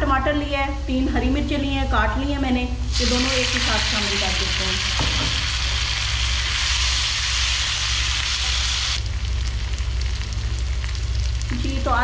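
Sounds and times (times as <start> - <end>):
steady low hum: 0.0 - 12.0
vegetables sizzling in frying pan: 2.9 - 12.0.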